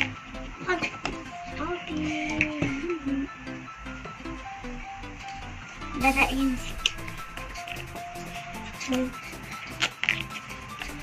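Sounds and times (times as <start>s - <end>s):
background music: 0.0s - 11.0s
spoon stirring slime: 6.0s - 11.0s.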